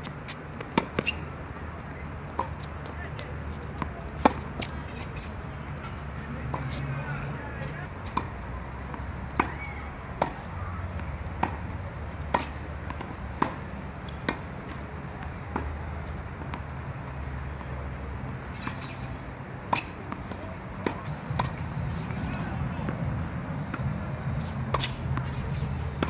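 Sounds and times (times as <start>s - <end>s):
tennis ball struck by rackets: 0.6s - 1.2s, 3.7s - 5.3s, 8.0s - 14.8s, 18.5s - 26.0s.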